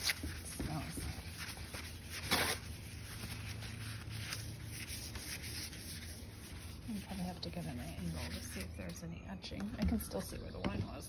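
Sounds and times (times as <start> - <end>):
paper towel wiping stone: 0.0 - 8.7.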